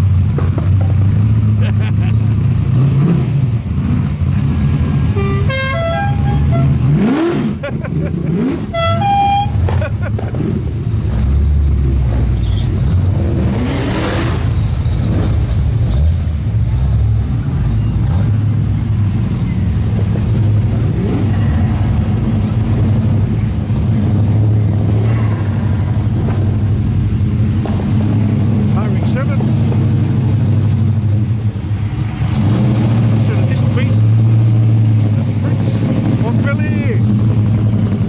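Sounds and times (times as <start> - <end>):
car engine revving up: 0.0 - 38.0
car engines running loudly: 0.0 - 38.0.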